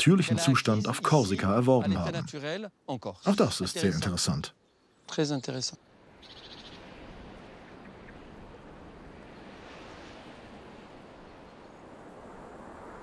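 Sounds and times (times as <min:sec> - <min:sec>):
outdoor ambience rushing: 0:05.8 - 0:13.0.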